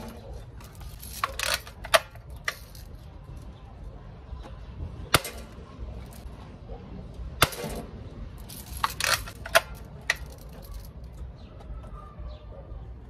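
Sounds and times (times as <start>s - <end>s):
rifle lever clicks and clatter: 0.0s - 2.9s, 8.4s - 11.2s
metallic clink: 7.4s - 11.1s.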